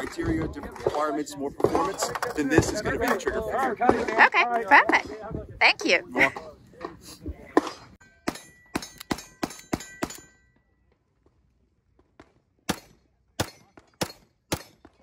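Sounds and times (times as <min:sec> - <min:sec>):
pistol shots: 0:12.7 - 0:15.0.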